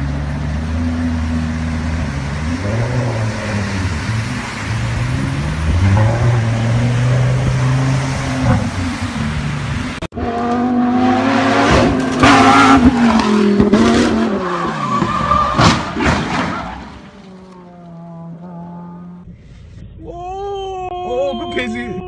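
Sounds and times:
car engine in flood water: 0.0s - 16.0s
car engine revving: 0.0s - 16.0s.

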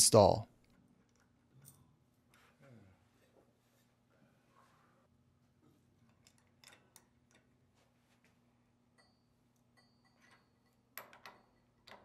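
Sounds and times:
small metal clicks: 6.1s - 7.6s.

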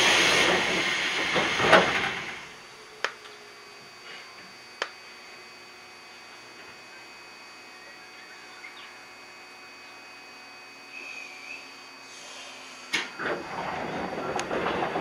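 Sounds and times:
faint steady whine: 0.2s - 15.0s
compressed air hissing: 10.9s - 13.0s.

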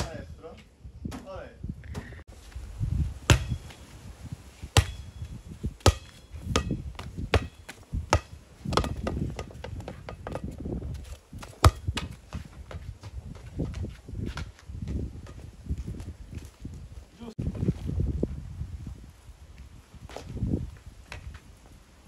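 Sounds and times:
rubber ball slapping on concrete: 3.3s - 3.7s, 5.8s - 10.6s.

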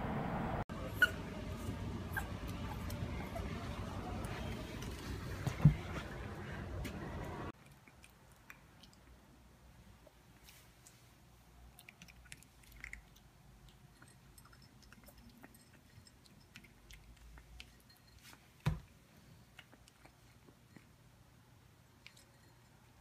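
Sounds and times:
puppy chewing dry kibble: 11.7s - 18.6s, 19.2s - 21.0s.

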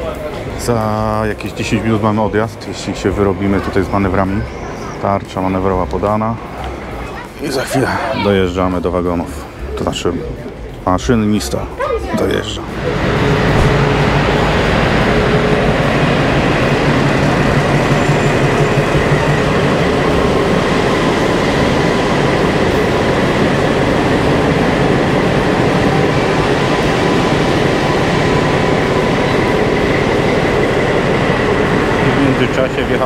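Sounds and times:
diesel locomotive engine drone: 0.0s - 33.0s
high whine: 12.6s - 33.0s.

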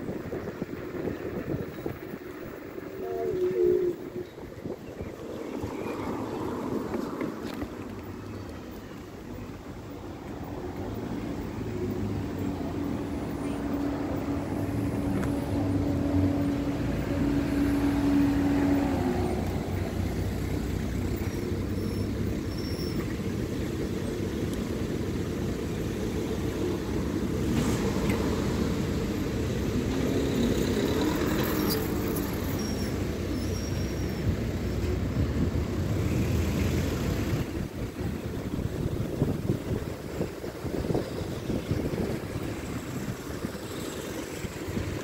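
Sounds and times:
engine hum: 0.0s - 45.0s
road traffic rumble: 0.0s - 45.0s.

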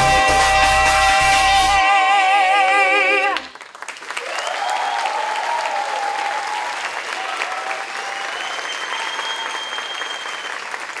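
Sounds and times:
audience clapping: 2.6s - 11.0s
audience cheering shouts: 4.2s - 9.7s.

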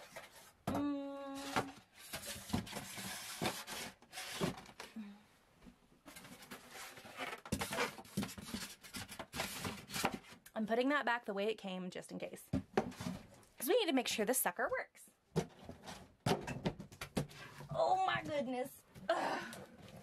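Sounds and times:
cardboard and styrofoam rustling: 1.3s - 4.8s, 6.1s - 10.4s.

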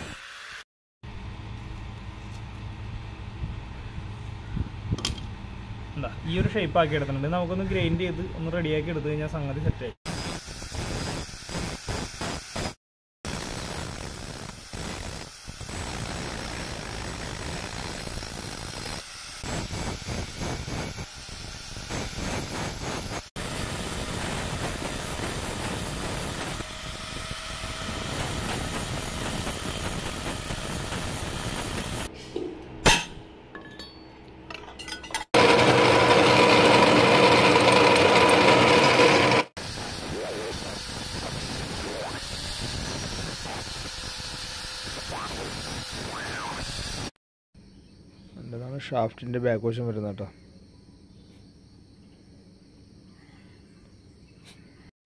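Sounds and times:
angle grinder grinding steel: 10.1s - 32.1s, 34.8s - 47.1s
sharp metallic clink: 32.8s - 35.3s
drill press drilling steel: 35.4s - 39.9s.

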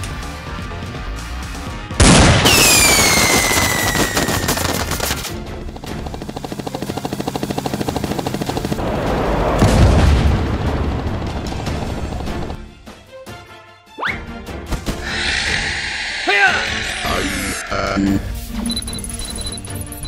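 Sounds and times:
background music: 0.0s - 4.2s, 4.8s - 20.0s
machine gun fire: 2.0s - 5.4s
falling whistle: 2.5s - 4.4s.

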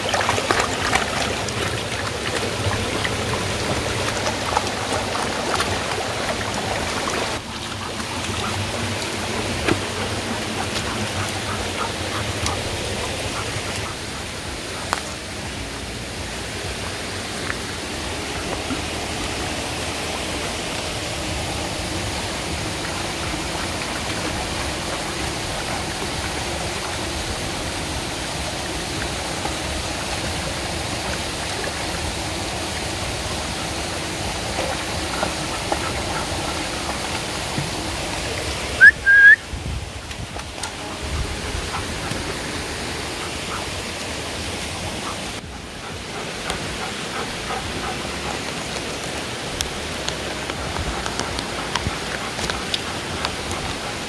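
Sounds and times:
stream running over stones: 0.0s - 54.0s
high two-note whistle: 38.8s - 39.4s.

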